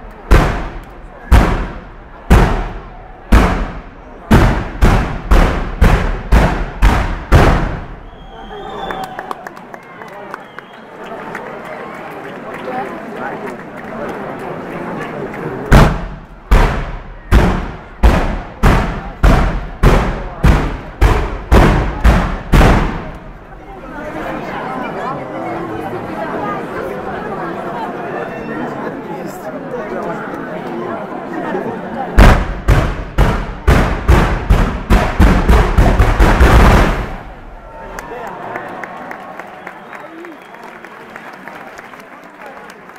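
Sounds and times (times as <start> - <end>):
firework bangs with echo: 0.3 - 8.1, 15.7 - 23.4, 32.2 - 37.4.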